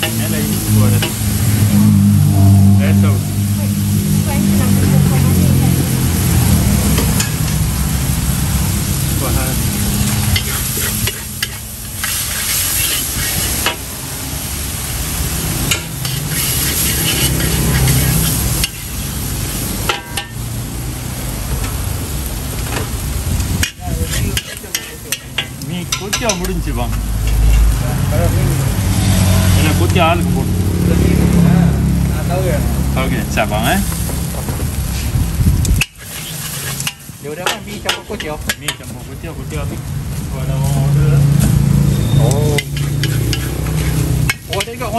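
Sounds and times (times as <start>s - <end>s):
noodles sizzling in a wok: 0.0s - 2.4s, 3.4s - 30.2s, 32.1s - 44.9s
low hum: 0.5s - 9.0s
metal spatula scraping wok: 6.2s - 7.9s, 9.6s - 13.9s, 15.2s - 20.4s, 23.6s - 27.8s, 35.8s - 39.2s, 40.6s - 44.9s
spatula clanking against wok: 19.9s - 20.4s, 23.6s - 27.6s, 35.8s - 38.9s, 42.5s - 44.8s.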